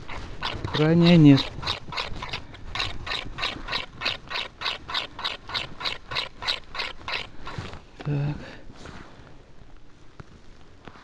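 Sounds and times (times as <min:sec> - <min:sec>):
footsteps crunching through snow: 0:00.0 - 0:03.8, 0:07.0 - 0:08.0, 0:08.6 - 0:11.0.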